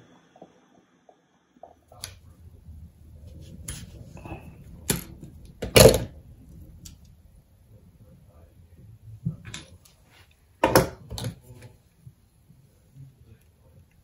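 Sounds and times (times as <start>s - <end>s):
low rumble: 1.6s - 9.6s.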